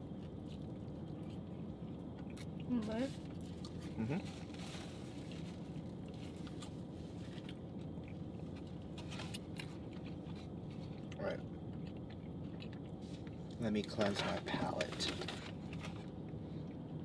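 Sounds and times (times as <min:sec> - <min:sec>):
chewing: 0:00.0 - 0:04.6, 0:05.2 - 0:14.4
low background hum: 0:00.0 - 0:17.0
person humming hm: 0:04.0 - 0:04.2.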